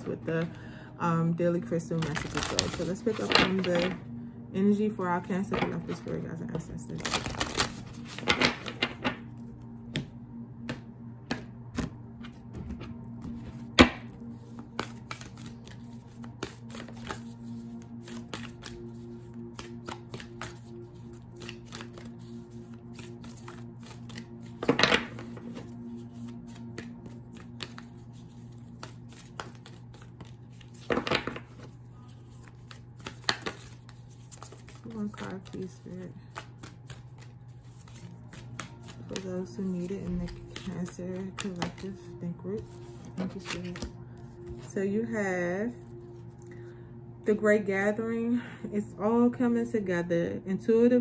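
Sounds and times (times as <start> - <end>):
low hum: 0.0 - 51.0
cards riffle shuffling: 2.0 - 4.0, 7.0 - 9.2, 13.3 - 42.0, 42.6 - 44.7.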